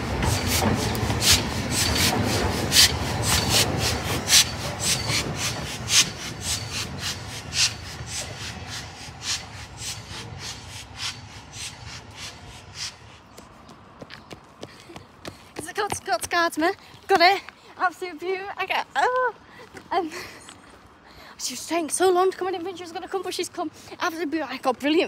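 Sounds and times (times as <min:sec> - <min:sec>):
steam locomotive chuffing: 0:00.0 - 0:13.2.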